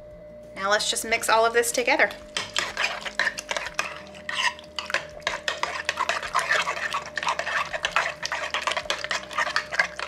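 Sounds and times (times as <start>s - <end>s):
spoon stirring in glass bowl: 2.2s - 10.0s.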